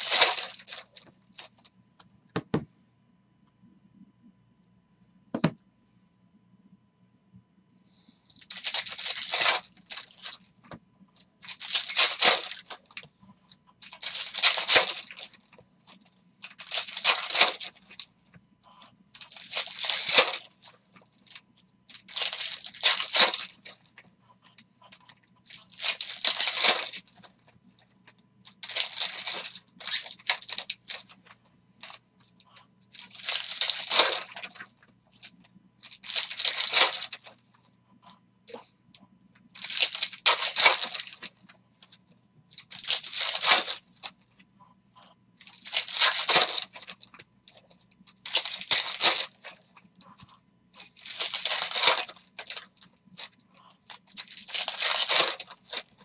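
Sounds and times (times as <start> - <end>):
foil wrappers tearing and crinkling: 0.0 - 1.7, 8.3 - 10.5, 11.4 - 13.1, 13.8 - 18.1, 19.2 - 37.4, 39.5 - 44.2, 45.4 - 56.0.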